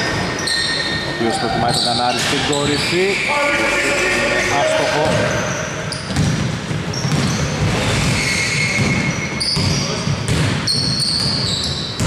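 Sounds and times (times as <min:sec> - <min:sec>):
short high shoe squeaks: 0:00.0 - 0:06.2, 0:06.9 - 0:10.0, 0:10.6 - 0:12.0
players' voices: 0:01.1 - 0:05.9
basketball dribbling: 0:05.0 - 0:12.0.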